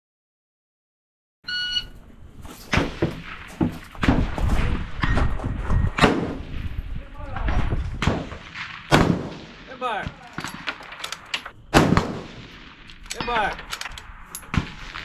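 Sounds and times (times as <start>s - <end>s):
shot timer beep: 1.5s - 1.9s
rifle fire: 2.7s - 15.0s.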